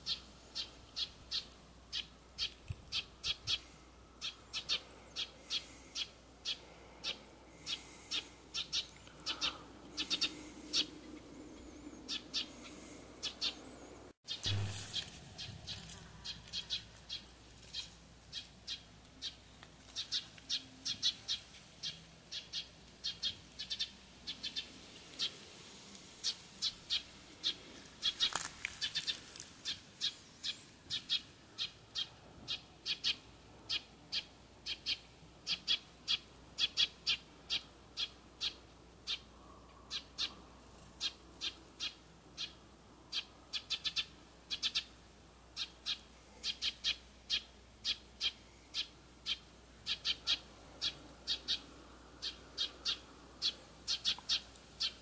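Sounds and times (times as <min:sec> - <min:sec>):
bird chirping: 0:00.0 - 0:25.4, 0:41.0 - 0:44.9, 0:45.6 - 0:55.0.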